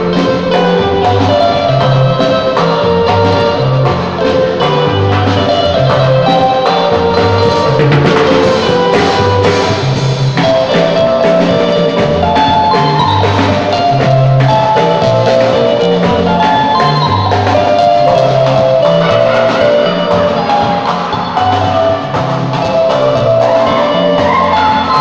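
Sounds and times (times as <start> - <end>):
bass line: 0.0 - 25.0
electric guitar melody: 0.0 - 25.0
percussion: 0.0 - 25.0.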